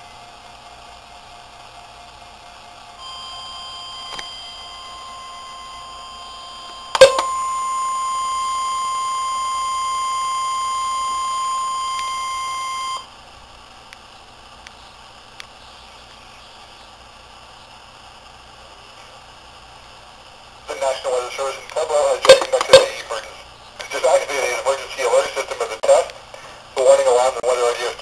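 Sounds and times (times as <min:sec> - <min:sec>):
alarm tone from small speaker: 0:03.0 - 0:13.1.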